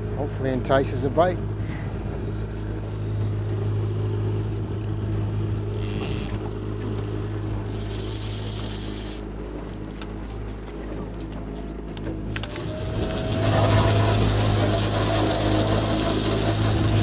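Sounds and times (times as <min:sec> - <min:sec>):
boat motor humming: 0:00.0 - 0:17.0.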